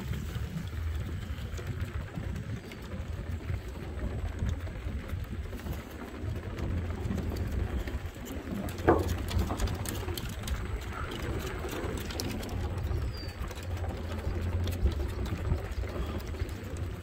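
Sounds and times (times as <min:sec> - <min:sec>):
low rumble: 0:00.0 - 0:17.0
footsteps on wooden boards: 0:07.0 - 0:12.4.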